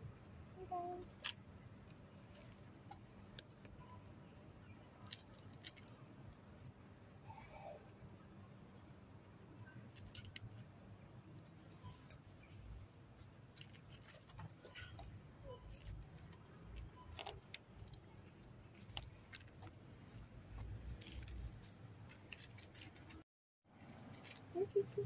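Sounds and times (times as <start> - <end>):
cat crunching dry kibble: 15.7 - 23.2.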